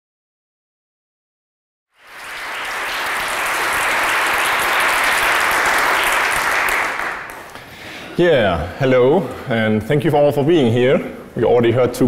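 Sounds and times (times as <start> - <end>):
audience applauding: 2.0 - 7.6.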